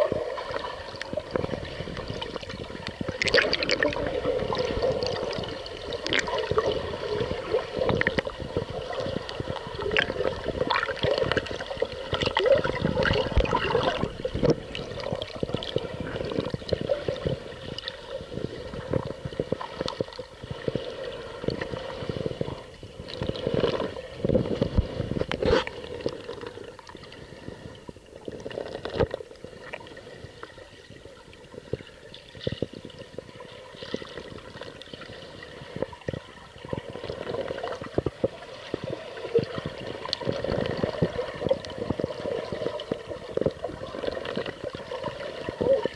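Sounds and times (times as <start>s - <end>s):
muffled underwater gurgling: 0.0s - 45.9s.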